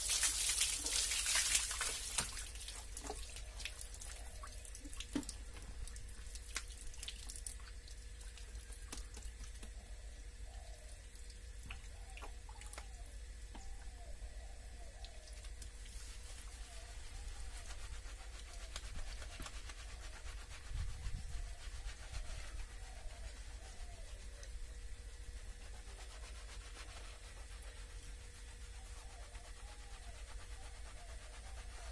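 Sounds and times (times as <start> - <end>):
water dripping on concrete: 0.0 - 9.8.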